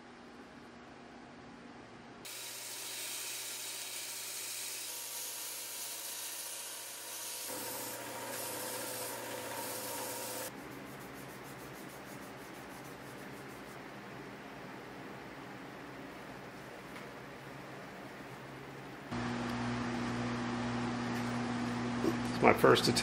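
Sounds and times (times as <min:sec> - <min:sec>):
belt grinder grinding metal: 0:02.3 - 0:10.5.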